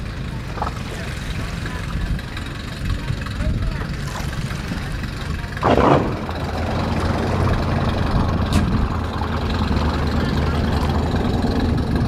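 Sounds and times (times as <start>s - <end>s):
boat engine idling: 0.0s - 12.0s
short loud noise burst: 5.6s - 6.7s.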